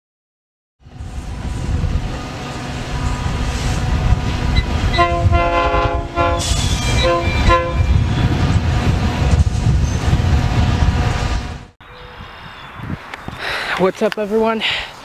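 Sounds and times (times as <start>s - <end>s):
diesel locomotive rumbling: 0.8s - 12.1s
train air horn blasts: 4.8s - 8.0s.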